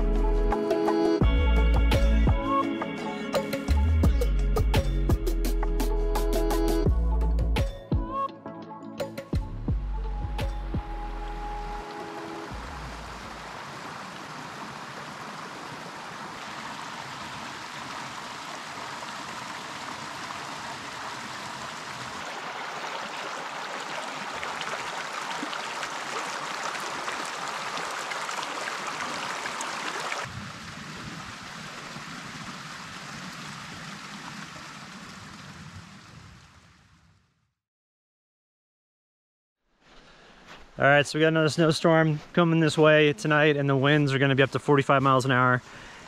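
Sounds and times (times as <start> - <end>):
stream babbling over rocks: 11.8 - 35.6.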